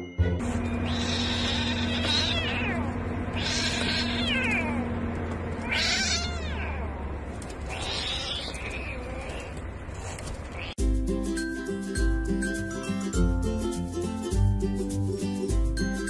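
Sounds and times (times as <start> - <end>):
kitten crying: 0.7 - 4.9, 5.6 - 9.6.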